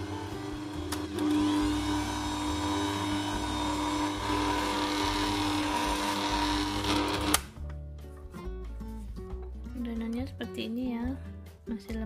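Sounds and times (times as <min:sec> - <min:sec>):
stand mixer motor whirring: 0:00.0 - 0:07.4.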